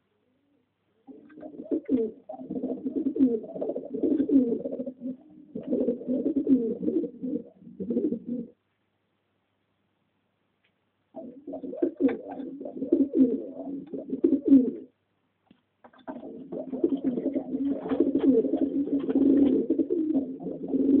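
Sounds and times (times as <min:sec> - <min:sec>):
pigeons cooing: 0:01.1 - 0:08.6, 0:11.2 - 0:14.9, 0:16.1 - 0:21.0.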